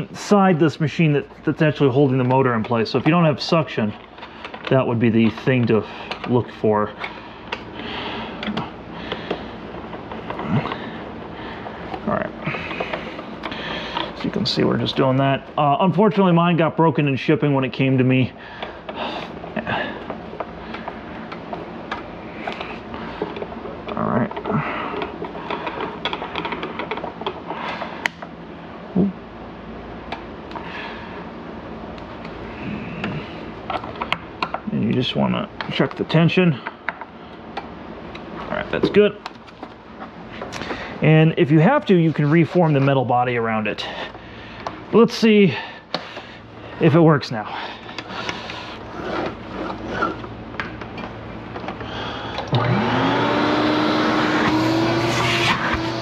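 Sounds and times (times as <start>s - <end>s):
clicks and handling noise: 3.9s - 14.4s, 20.0s - 28.4s
vacuum cleaner motor whining: 51.8s - 56.0s.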